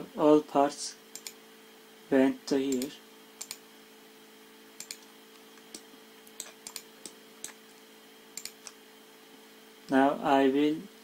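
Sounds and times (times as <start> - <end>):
faint electrical hum: 0.0 - 11.0
computer mouse clicking: 1.1 - 1.4, 2.7 - 3.6, 4.8 - 7.7, 8.4 - 8.8.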